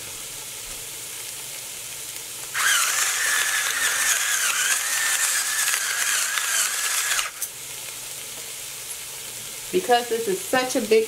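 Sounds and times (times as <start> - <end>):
vegetables sizzling in a pot: 0.0 - 11.0
electric pepper grinder whining: 2.5 - 7.5
peppercorns crunching: 2.6 - 7.6.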